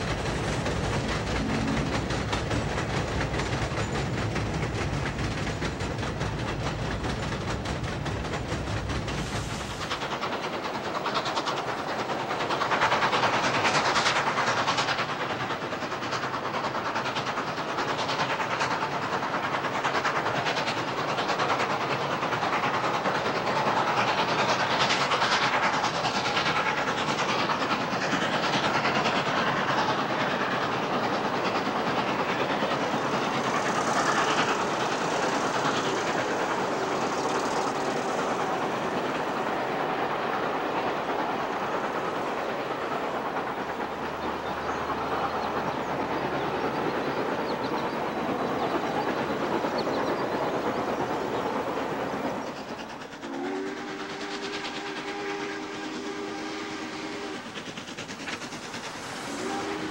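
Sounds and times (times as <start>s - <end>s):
train wheels clacking on rails: 0.0s - 59.9s
steam whistle chord: 53.3s - 57.4s, 59.3s - 59.9s.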